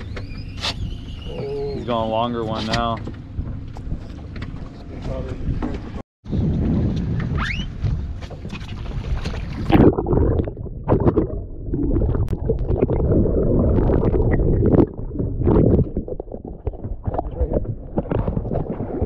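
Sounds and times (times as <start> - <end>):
underwater rumble and gurgling: 0.0 - 19.0
wind and sea noise: 0.0 - 19.0
clicks underwater: 8.2 - 19.0.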